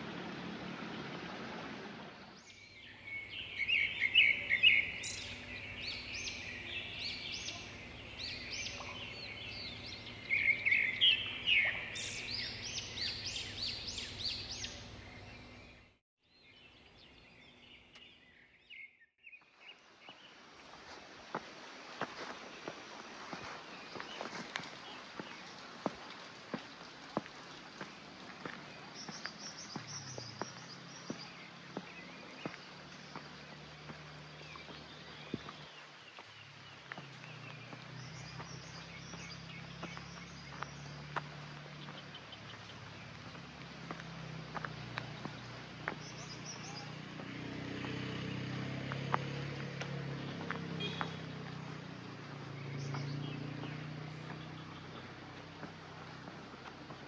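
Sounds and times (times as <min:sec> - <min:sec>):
bird chirps: 0:02.3 - 0:19.5, 0:45.0 - 0:48.5, 0:50.2 - 0:55.1
footsteps on hard path: 0:20.8 - 0:57.0.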